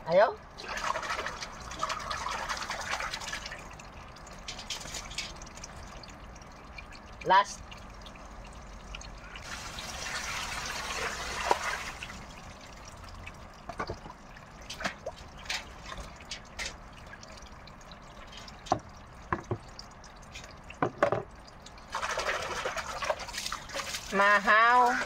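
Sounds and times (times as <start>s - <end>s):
water poured into a basin: 0.6s - 25.0s
crow splashing in water: 21.9s - 25.0s.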